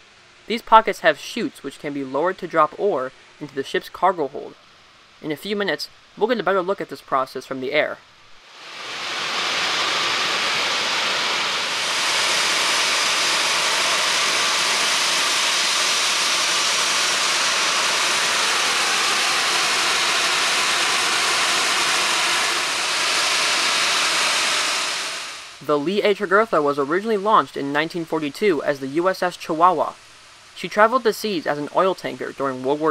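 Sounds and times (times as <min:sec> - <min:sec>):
ore pellets pouring down chute: 0:08.6 - 0:25.4.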